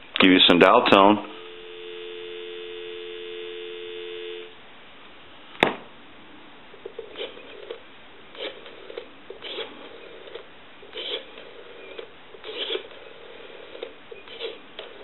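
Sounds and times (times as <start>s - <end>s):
telephone dial tone: 1.3s - 4.5s.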